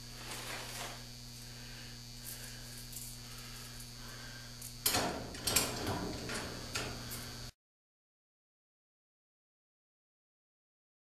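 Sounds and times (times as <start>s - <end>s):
faint steady hum: 0.0s - 7.6s.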